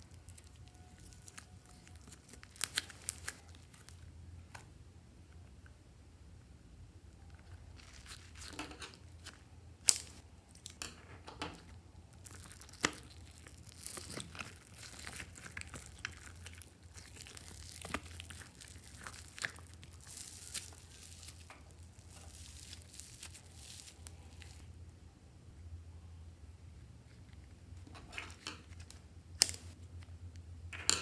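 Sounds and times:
foam slime crackling and crunching: 0.0 - 4.1, 7.4 - 10.8, 12.1 - 24.7.

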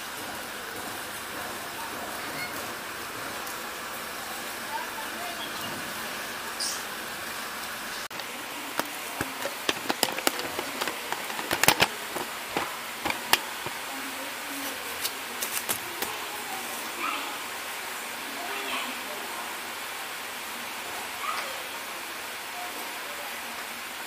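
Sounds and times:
rain falling: 0.0 - 24.0
sharp taps and clicks: 8.1 - 13.8.

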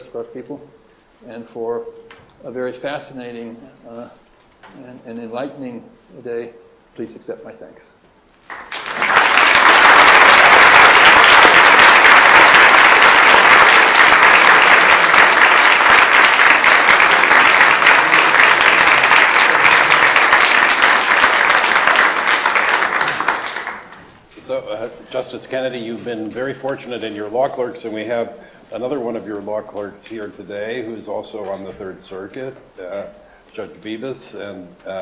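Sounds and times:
audience applauding: 8.4 - 24.2.

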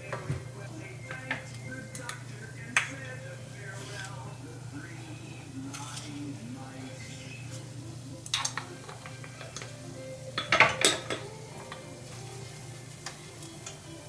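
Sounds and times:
steady low hum: 0.0 - 10.5
utensils clinking on pot: 0.0 - 14.0.

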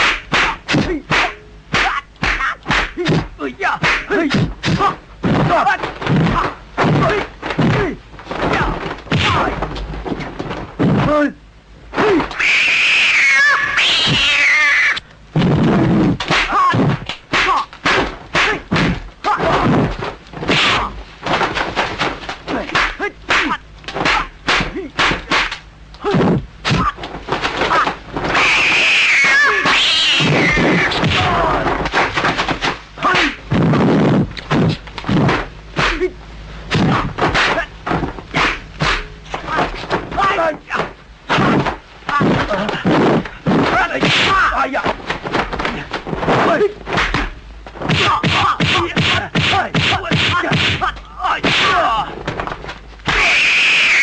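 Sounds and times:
high cat-like screeching cries: 12.4 - 15.0, 28.3 - 31.5, 53.1 - 54.0
person shouting: 29.0 - 31.7, 48.0 - 52.1
punch and block impact effects: 47.9 - 50.8.

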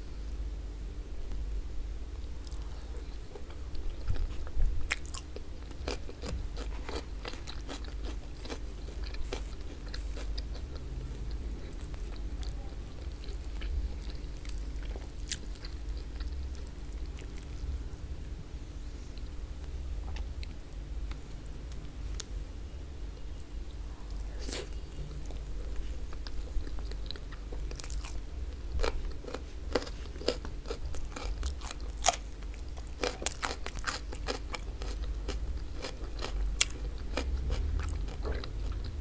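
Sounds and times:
low hum: 0.0 - 39.0
close chewing with mouth clicks: 2.4 - 17.6, 24.4 - 39.0.

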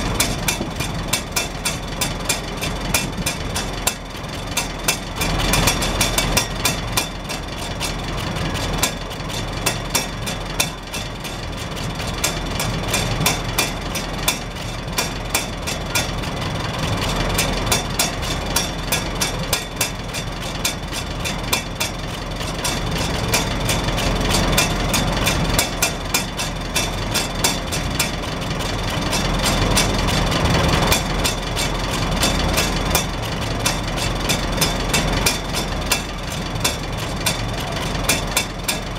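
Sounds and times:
tractor engine idling: 0.0 - 38.9.

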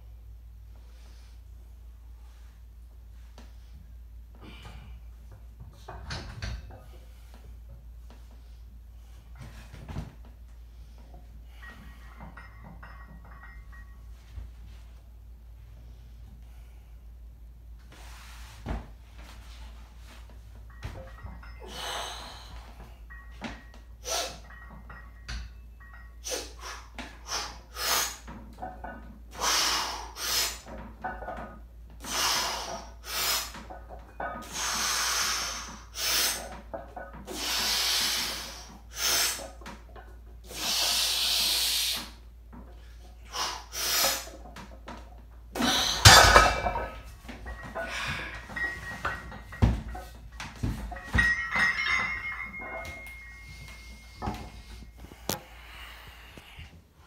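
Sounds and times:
barbell clanging into rack: 11.5 - 14.0, 45.6 - 54.8
man breathing heavily: 21.6 - 23.0, 47.5 - 48.7, 53.3 - 56.9.

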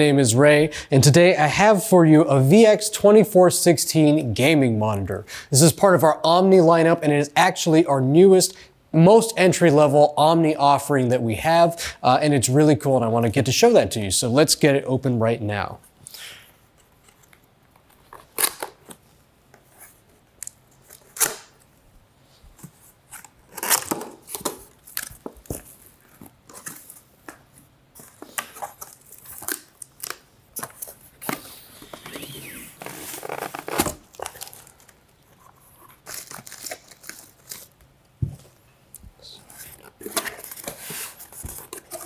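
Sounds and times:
plastic wrap crinkling: 28.0 - 37.8.

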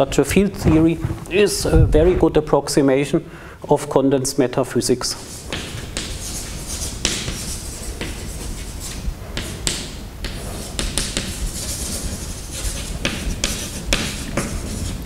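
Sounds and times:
chalk writing on blackboard: 5.2 - 15.0.

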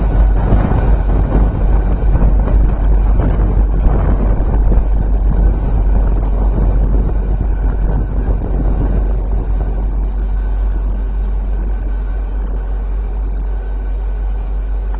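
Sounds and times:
train rumbling on tracks: 0.0 - 14.9.

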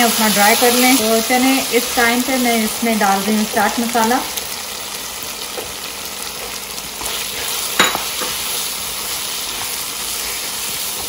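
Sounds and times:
meat sizzling in oil: 0.0 - 11.0
spatula scraping pan: 7.0 - 11.0.

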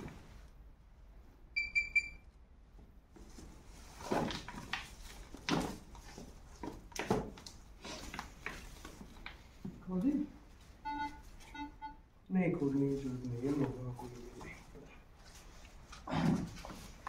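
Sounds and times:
pinpointer beeping: 1.6 - 2.2, 10.8 - 12.0.

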